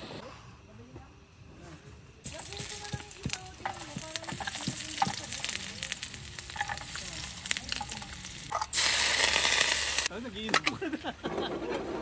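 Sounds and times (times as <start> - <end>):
food sizzling in frying pan: 2.2 - 10.1.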